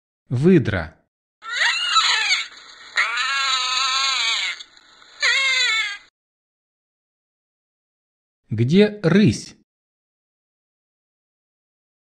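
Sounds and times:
otter squealing cries: 0:01.4 - 0:06.1.

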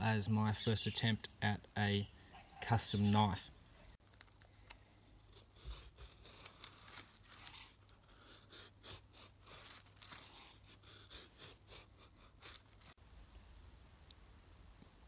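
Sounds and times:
knife carving wood: 0:04.2 - 0:13.0.

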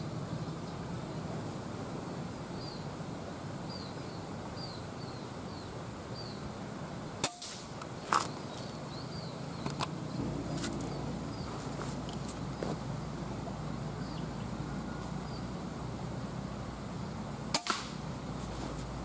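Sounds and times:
outdoor background: 0:00.0 - 0:19.0
bird chirping: 0:02.0 - 0:02.9, 0:03.6 - 0:06.4, 0:08.0 - 0:12.8, 0:13.6 - 0:15.6
air rifle cracks: 0:17.6 - 0:18.0.

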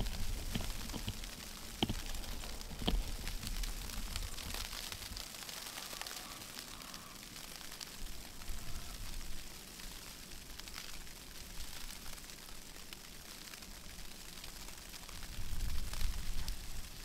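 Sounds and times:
wind noise on microphone: 0:00.0 - 0:01.2, 0:15.3 - 0:16.8
sharp clicks: 0:00.0 - 0:03.6.

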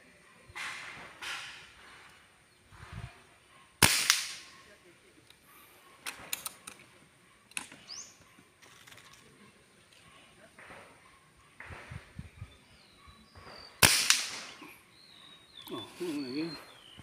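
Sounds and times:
air rifle shot: 0:03.8 - 0:04.6, 0:13.4 - 0:14.6.

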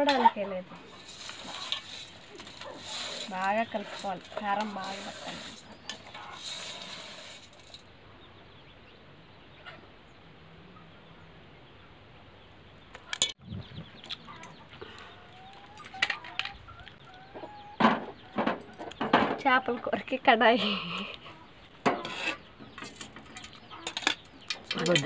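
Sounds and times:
faint chicken clucking: 0:08.0 - 0:19.9, 0:20.6 - 0:22.8, 0:23.5 - 0:24.2.

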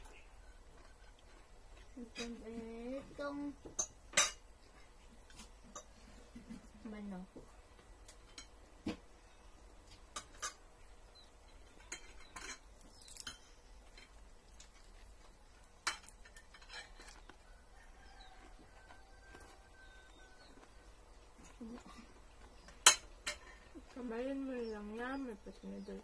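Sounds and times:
cutlery clinking on plates: 0:10.1 - 0:10.6, 0:11.5 - 0:14.2, 0:15.8 - 0:17.3, 0:22.8 - 0:23.6.

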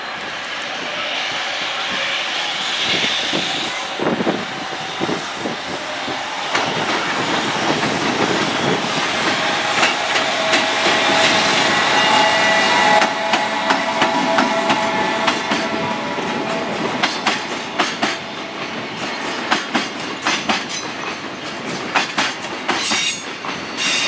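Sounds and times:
train rumble: 0:00.0 - 0:24.0
train wheels clacking over rail joints: 0:04.2 - 0:24.0
thin whine: 0:08.3 - 0:19.0.

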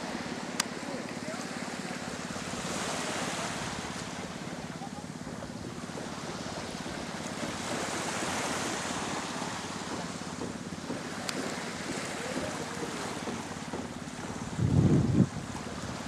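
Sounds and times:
waves washing on sand: 0:00.0 - 0:16.0
wind over the sea: 0:00.0 - 0:16.0
wind buffeting microphone: 0:14.2 - 0:16.0.

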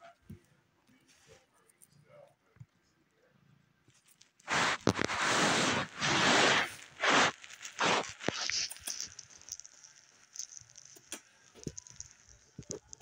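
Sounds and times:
fingers rubbing on phone microphone: 0:04.4 - 0:13.0
faint clicks: 0:06.9 - 0:13.0.

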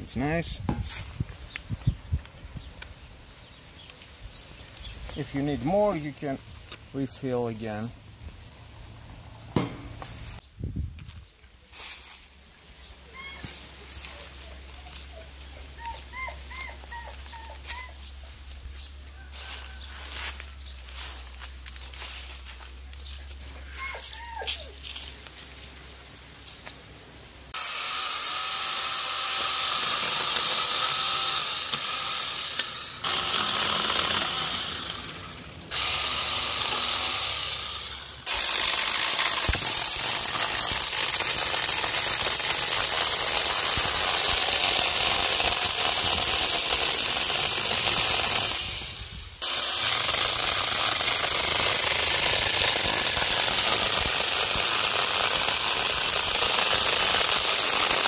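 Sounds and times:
battery chainsaw cutting branch: 0:04.8 - 0:08.0, 0:13.4 - 0:25.1, 0:27.5 - 0:58.0.

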